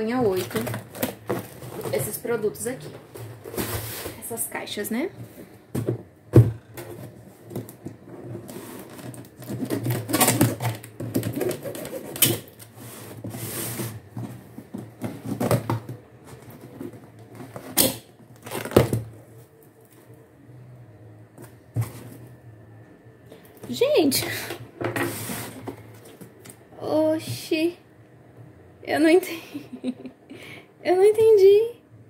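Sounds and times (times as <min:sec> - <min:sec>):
cardboard crackling and rustling: 0:00.1 - 0:04.3, 0:06.4 - 0:17.8
packing tape ripping: 0:08.5 - 0:12.7, 0:17.6 - 0:19.0.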